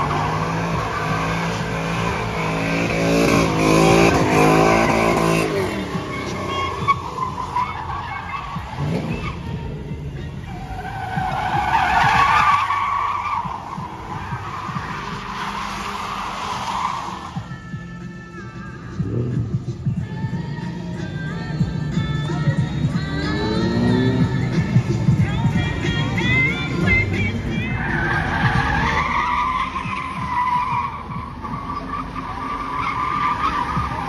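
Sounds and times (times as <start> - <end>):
car engine revving hard: 0.0 - 6.3, 23.2 - 25.2
tyres squealing: 0.0 - 9.6, 10.2 - 17.6, 25.2 - 34.0.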